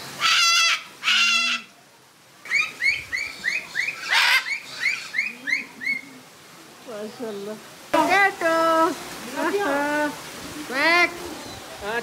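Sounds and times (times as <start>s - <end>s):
parrots screeching: 0.2s - 1.7s, 2.5s - 5.6s.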